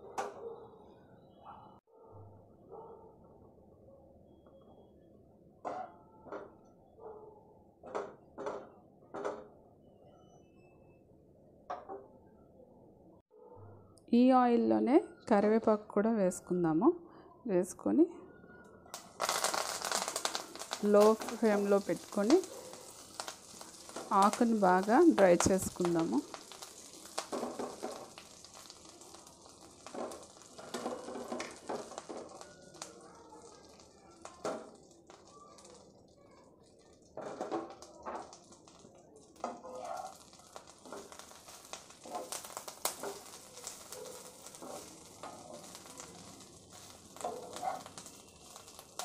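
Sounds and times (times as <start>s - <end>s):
leaves sizzling in oil: 18.9s - 49.0s
wooden spatula scraping frying pan: 29.8s - 32.4s, 44.5s - 45.4s
stirring scraping the pan: 39.4s - 48.8s.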